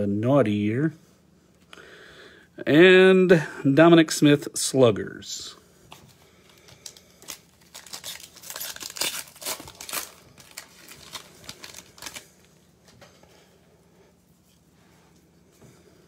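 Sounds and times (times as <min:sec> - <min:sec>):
foil wrapper crinkling and tearing: 0:06.4 - 0:12.6.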